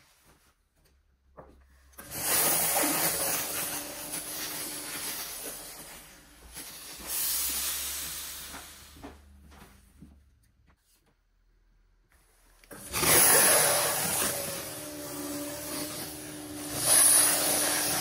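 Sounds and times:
steam iron hissing: 2.0 - 9.0, 12.7 - 18.0.

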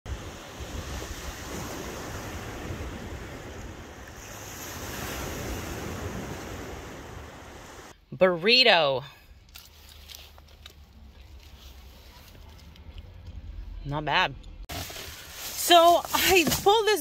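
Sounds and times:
small waves washing on shore: 0.1 - 7.9.

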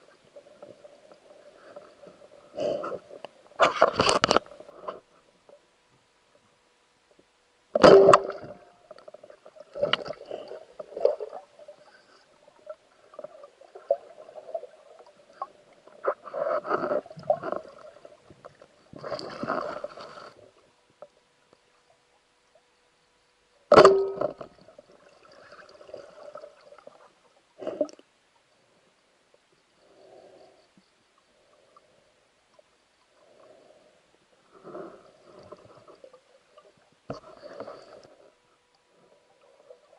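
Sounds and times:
sharp knocks underwater: 7.8 - 8.7, 23.7 - 24.6
water gurgling and swishing: 7.8 - 22.8, 23.7 - 28.8, 31.1 - 39.9.

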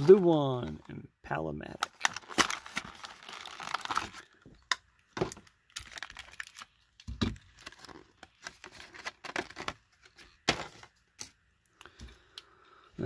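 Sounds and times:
plastic packaging crinkling and tearing: 1.8 - 10.7.

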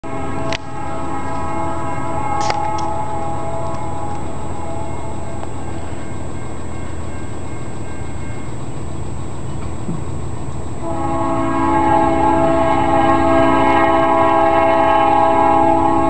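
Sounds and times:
locomotive air horn: 0.0 - 6.6, 10.8 - 16.0
low steady rumble: 0.0 - 16.0.

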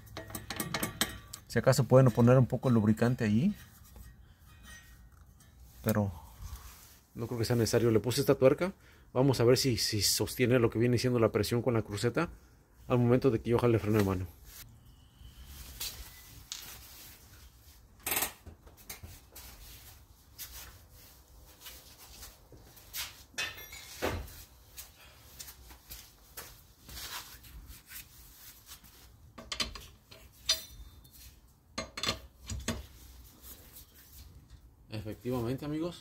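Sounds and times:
hand work clicks and knocks: 0.0 - 2.3, 29.3 - 31.1, 31.7 - 32.9
lug wrench clinking on metal: 0.0 - 3.0, 29.4 - 32.9.

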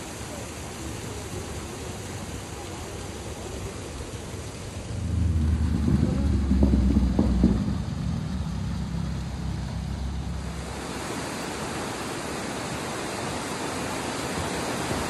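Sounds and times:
river rushing over rocks: 0.0 - 15.0
low rumble: 4.7 - 11.1.

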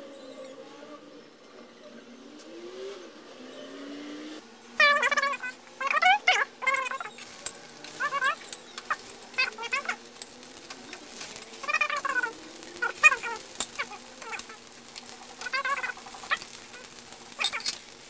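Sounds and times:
cat meowing: 4.8 - 7.1.

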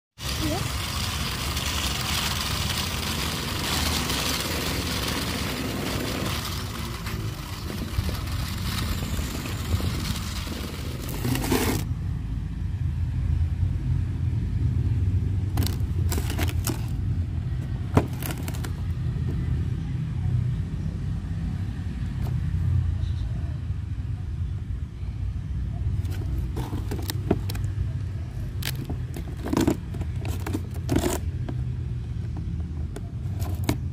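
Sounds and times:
small electric motors whirring: 0.2 - 11.9, 15.6 - 17.0
cardboard box crinkles and taps: 18.0 - 18.8.

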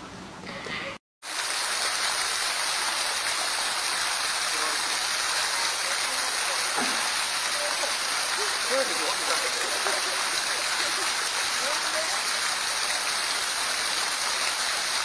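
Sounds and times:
water hissing: 1.2 - 15.0.

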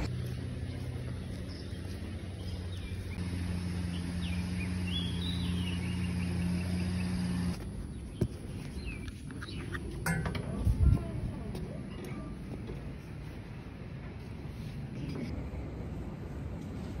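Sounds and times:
bird chirps: 3.9 - 7.3.

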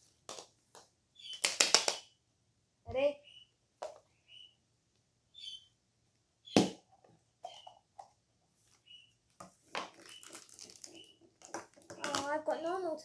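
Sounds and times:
plastic capsules clicking and creaking: 9.8 - 12.4.

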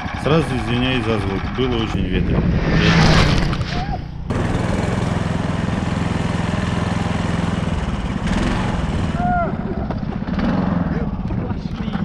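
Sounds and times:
wind noise on microphone: 0.0 - 4.8
snow vehicle engine running: 0.0 - 12.0.

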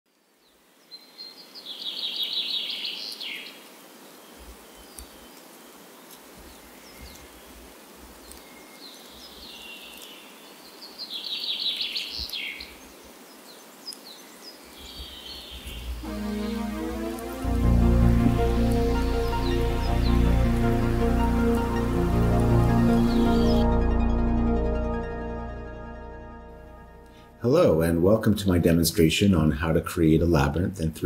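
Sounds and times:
songbird singing: 0.1 - 23.8
soft outdoor ambience: 0.1 - 31.0.

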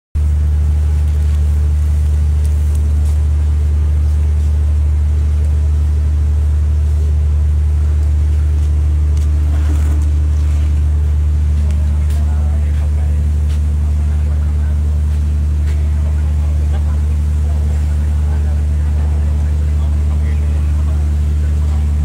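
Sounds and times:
loud steady low hum: 0.2 - 22.0.

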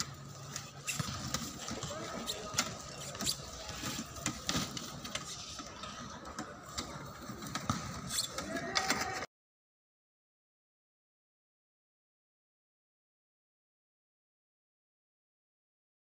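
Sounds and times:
wheelchairs clicking and rattling: 0.0 - 9.3.

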